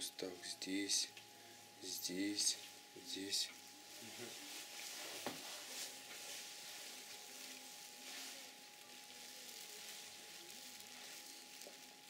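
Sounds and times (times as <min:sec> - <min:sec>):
faint hiss: 0:00.0 - 0:12.0.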